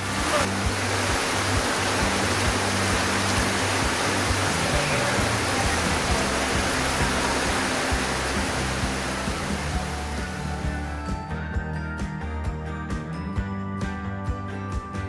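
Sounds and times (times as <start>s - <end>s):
heavy rain falling: 0.0s - 10.9s
background music low notes: 0.0s - 15.0s.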